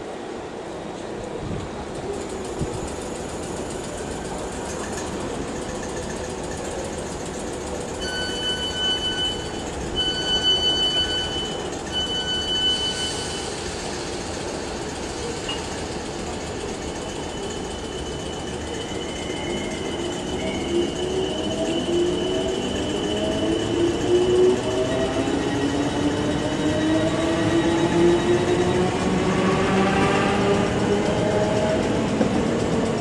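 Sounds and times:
station noise rumble: 0:00.0 - 0:33.0
train door warning beeps: 0:07.9 - 0:13.7.

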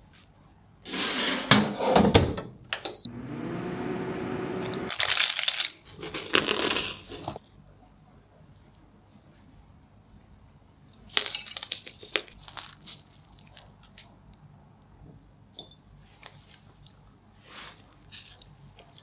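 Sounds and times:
crunchy topping crackling: 0:12.2 - 0:14.4.

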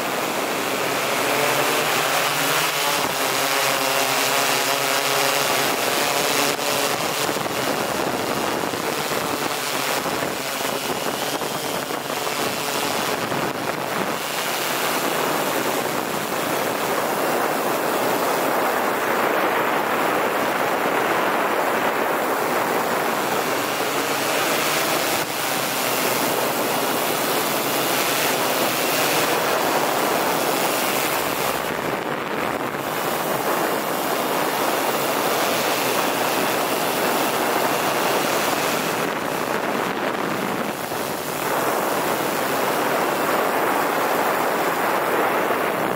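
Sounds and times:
drone propellers and motors: 0:00.0 - 0:45.9
wind on microphone: 0:00.0 - 0:45.9.

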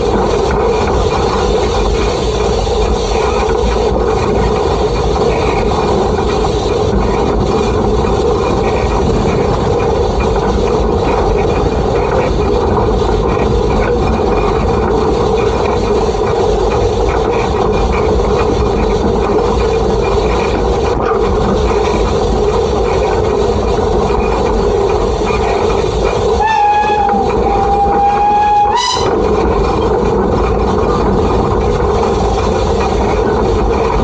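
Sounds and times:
steam locomotive running: 0:00.0 - 0:34.0
steam locomotive whistle: 0:26.4 - 0:29.2.

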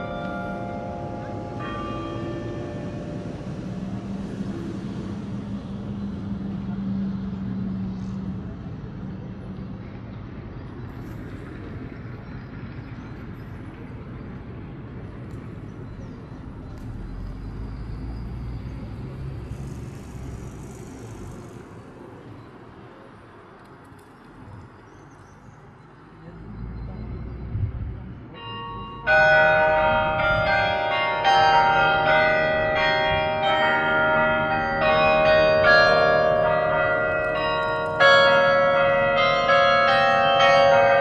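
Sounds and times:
carillon bells: 0:00.0 - 0:04.5, 0:28.3 - 0:41.0
heavy vehicle low rumble: 0:00.0 - 0:22.4
road traffic rumble: 0:00.0 - 0:41.0.

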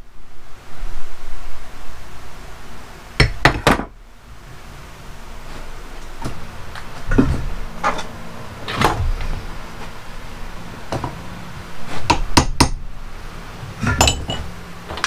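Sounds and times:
metal parts knocking and clinking: 0:13.8 - 0:15.0.

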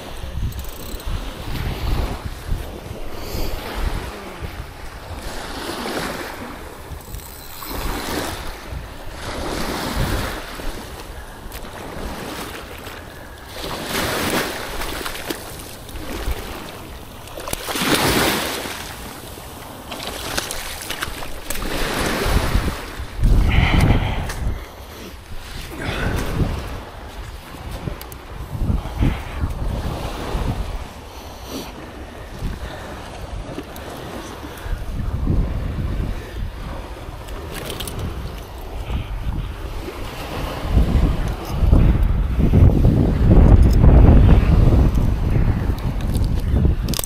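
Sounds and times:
wind rumbling on microphone: 0:00.0 - 0:47.0
ocean surf breaking: 0:01.2 - 0:39.0.

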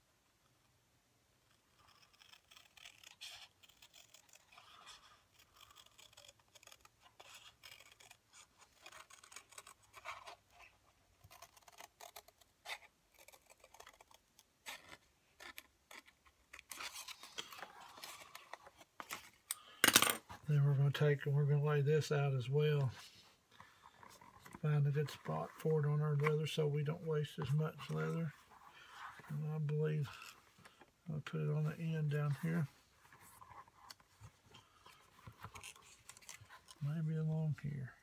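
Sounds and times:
scissors snipping paper: 0:01.8 - 0:10.3
paper rustling: 0:05.6 - 0:20.5.

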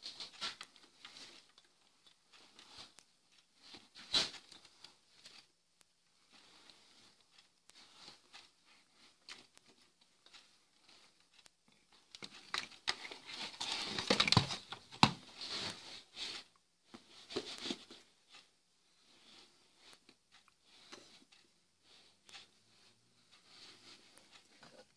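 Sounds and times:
wiring harness rustling and clicking: 0:06.3 - 0:16.4.

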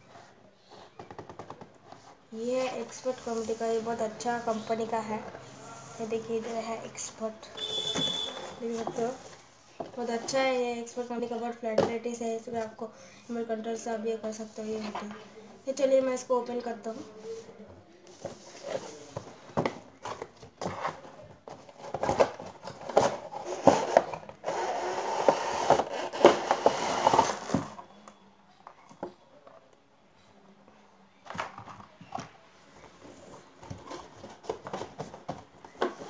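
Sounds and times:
cardboard rustling and knocking: 0:00.8 - 0:02.1, 0:18.2 - 0:27.8, 0:33.4 - 0:36.0
cardboard tray scraping out: 0:23.1 - 0:27.7.

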